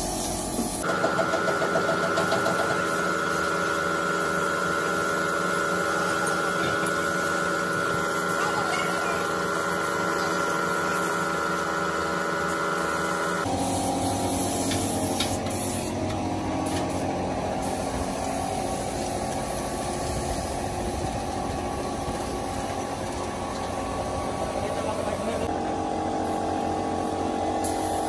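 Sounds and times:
spray gun hissing: 0.0s - 0.9s, 2.8s - 16.0s, 16.6s - 20.8s, 21.7s - 22.7s, 27.6s - 28.0s
steady mechanical hum: 0.0s - 28.0s
steady mechanical noise: 0.0s - 28.0s.

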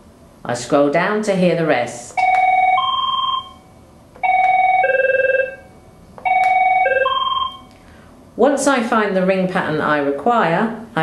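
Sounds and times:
electronic phone ring tones: 2.3s - 3.6s, 4.2s - 7.7s.

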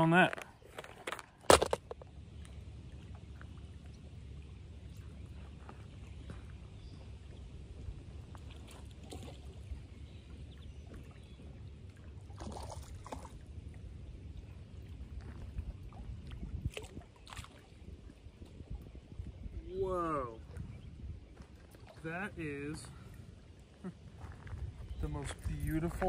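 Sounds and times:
fishing line clicks and rustle: 0.0s - 7.4s, 22.7s - 26.0s
wind rumble on microphone: 1.5s - 26.0s
small waves lapping on rocks: 10.9s - 13.6s.

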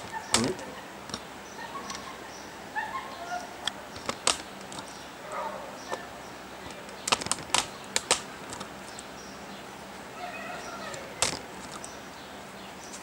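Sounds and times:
sharp clicks: 3.6s - 5.0s, 6.6s - 9.1s, 10.9s - 12.0s.

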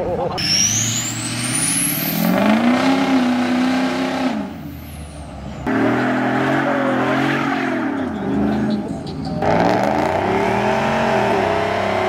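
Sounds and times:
truck engine revving: 0.4s - 12.0s.

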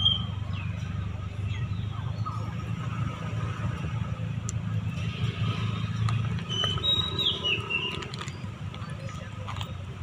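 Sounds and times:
high squeaky chirp: 6.4s - 9.3s.

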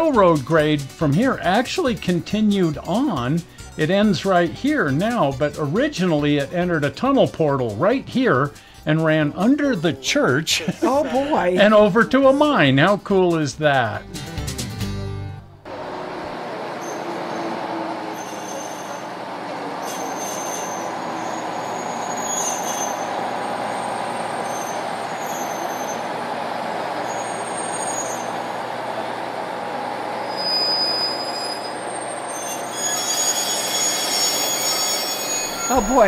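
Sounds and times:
diesel locomotive train rolling: 0.0s - 14.9s, 15.6s - 36.0s
brakes squealing: 15.7s - 36.0s.

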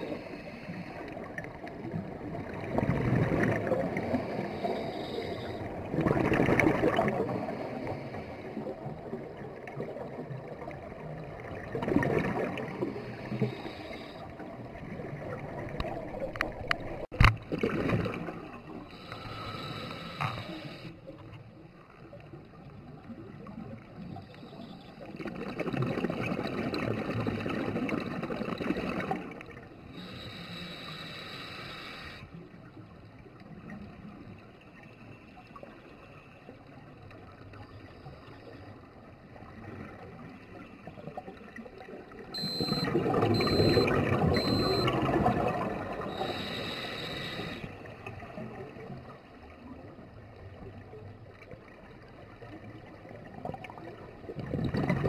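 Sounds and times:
bubbling regulator exhalation: 42.4s - 47.6s.

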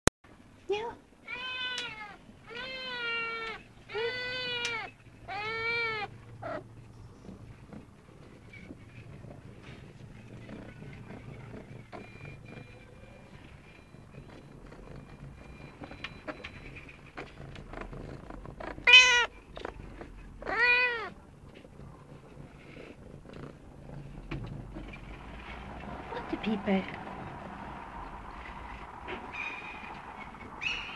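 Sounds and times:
cat meowing: 1.2s - 6.7s, 18.1s - 21.2s.

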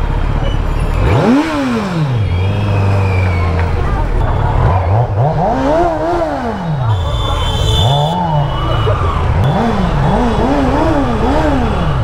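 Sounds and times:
motorcycle engine revving: 0.9s - 12.0s.

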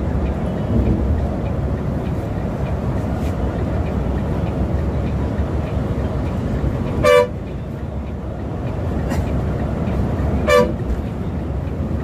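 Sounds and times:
coach engine and road rumble: 0.0s - 12.0s
short horn blast: 7.0s - 7.4s, 10.4s - 10.8s.

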